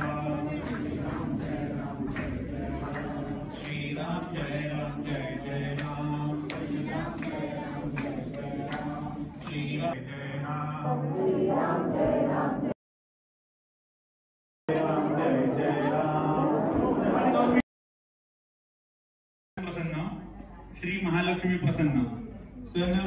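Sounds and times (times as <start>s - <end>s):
group chanting devotional song: 0.0s - 12.8s, 14.7s - 17.6s.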